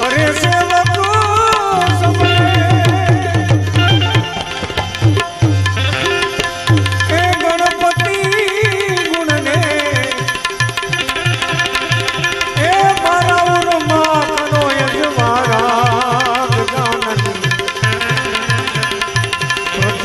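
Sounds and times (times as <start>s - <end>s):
hand drum beat: 0.0s - 20.0s
sliding held-note melody: 1.6s - 20.0s.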